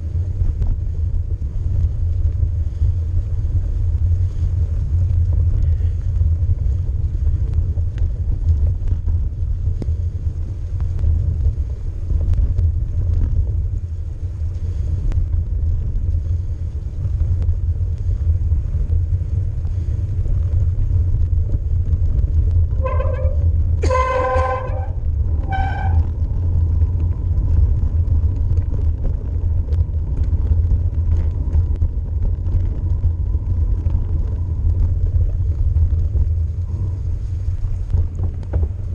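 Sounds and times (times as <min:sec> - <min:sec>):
bike riding low rumble: 0:00.0 - 0:38.9
short pitched toots: 0:22.8 - 0:26.1.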